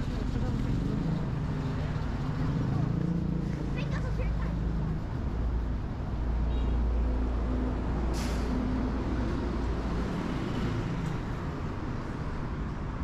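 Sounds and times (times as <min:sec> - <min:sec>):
heavy vehicle engine rumbling: 0:07.0 - 0:12.2
air brake hiss: 0:08.1 - 0:08.7.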